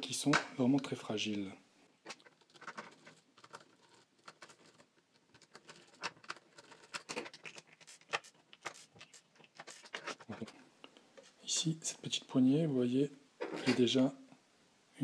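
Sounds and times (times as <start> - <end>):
plastic parts clicking and scratching: 2.0 - 10.6.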